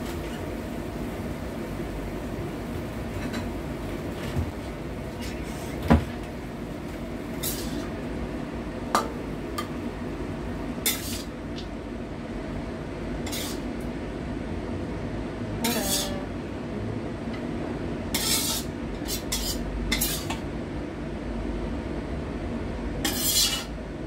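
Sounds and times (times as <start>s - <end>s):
steady low hum: 0.6s - 24.0s
spatula knocking and scraping wok: 7.3s - 8.0s, 8.9s - 9.8s, 10.8s - 11.7s, 13.2s - 13.7s, 15.6s - 16.3s, 18.1s - 20.5s, 23.0s - 23.7s.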